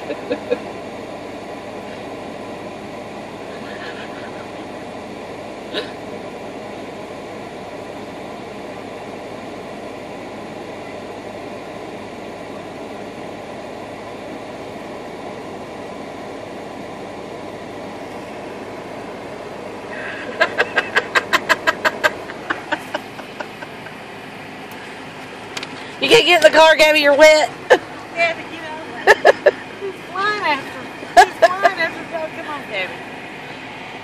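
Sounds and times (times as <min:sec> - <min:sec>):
car cabin hum: 0:02.4 - 0:34.0.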